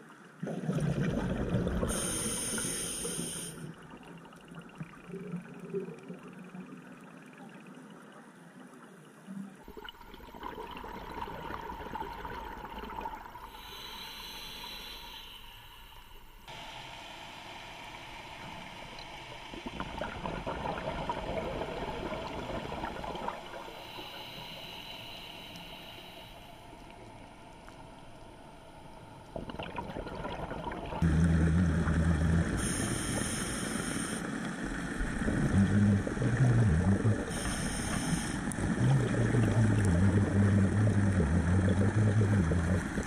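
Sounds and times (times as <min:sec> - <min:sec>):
underwater water noise: 0:00.0 - 0:43.0
exhalation bubbles gurgling: 0:00.4 - 0:02.7, 0:09.6 - 0:13.8, 0:19.5 - 0:23.9, 0:29.4 - 0:34.1, 0:35.0 - 0:43.0
diver breathing through regulator: 0:01.9 - 0:03.7, 0:13.5 - 0:16.4, 0:23.6 - 0:26.7, 0:32.5 - 0:34.3, 0:35.4 - 0:38.8.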